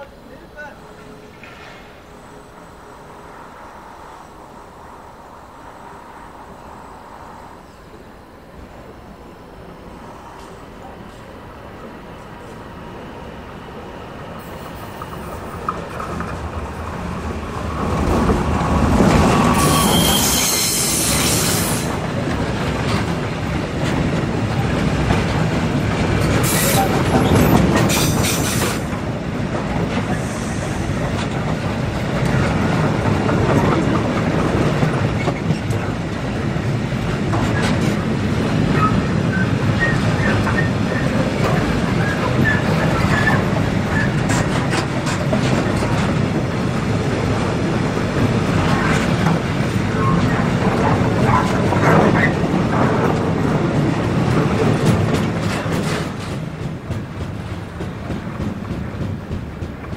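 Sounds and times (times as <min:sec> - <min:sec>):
freight train passing: 0:00.0 - 0:59.9
wheel squeal: 0:19.5 - 0:21.8, 0:26.4 - 0:28.7, 0:38.7 - 0:41.2, 0:42.0 - 0:44.2
clickety-clack of wagon wheels: 0:22.2 - 0:35.9, 0:38.6 - 0:46.4, 0:48.2 - 0:59.9.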